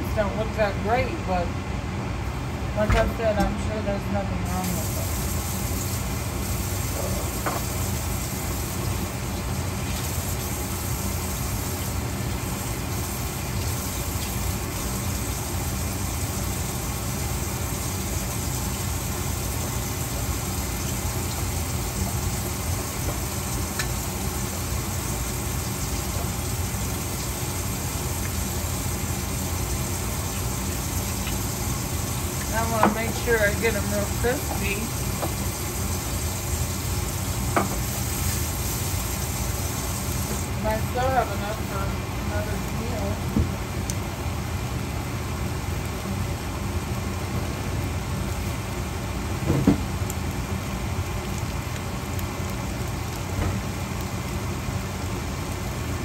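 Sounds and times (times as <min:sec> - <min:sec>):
range hood fan hum: 0:00.0 - 0:56.0
green beans sizzling in pan: 0:04.4 - 0:43.2.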